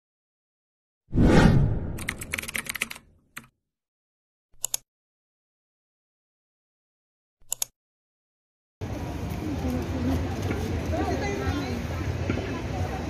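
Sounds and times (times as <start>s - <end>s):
keyboard typing clicks: 2.0s - 3.5s, 7.4s - 7.7s
single sharp clicks: 7.4s - 7.8s.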